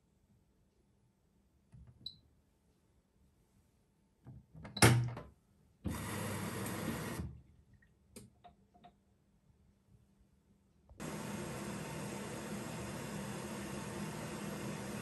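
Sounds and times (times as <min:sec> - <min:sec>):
water filling hiss: 0:11.0 - 0:15.0.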